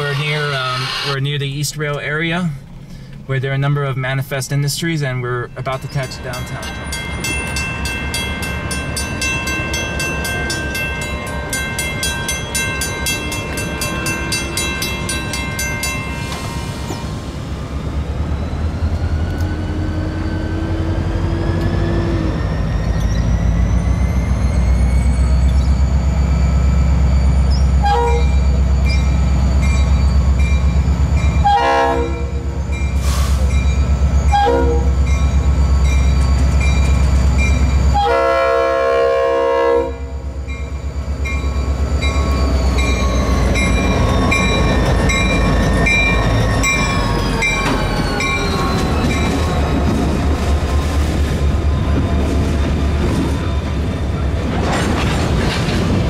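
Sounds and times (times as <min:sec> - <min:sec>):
rising whine: 0:00.0 - 0:01.6, 0:40.1 - 0:54.4
diesel locomotive engine rumble: 0:00.0 - 0:56.0
train horn blasts: 0:27.8 - 0:28.4, 0:31.4 - 0:32.5, 0:34.3 - 0:35.0, 0:37.9 - 0:40.2.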